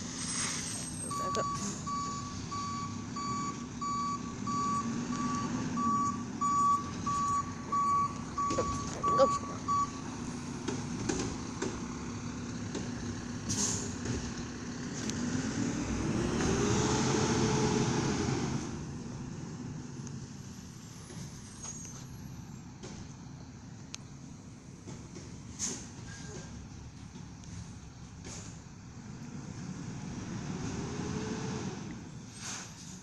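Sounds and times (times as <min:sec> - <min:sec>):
engine revving: 0:00.0 - 0:20.4, 0:29.0 - 0:32.1
diesel engine humming: 0:00.0 - 0:33.0
air brake hiss: 0:00.1 - 0:01.0, 0:13.5 - 0:13.9, 0:32.3 - 0:33.0
reversing alarm beeping: 0:00.9 - 0:10.1.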